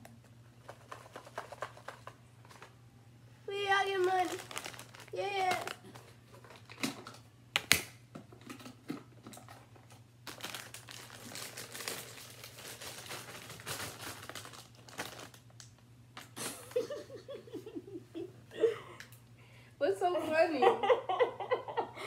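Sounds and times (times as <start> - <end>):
chip bag crinkling: 0.6 - 2.8, 3.6 - 7.3, 9.4 - 15.9
sharp snap of packaging: 6.7 - 8.0.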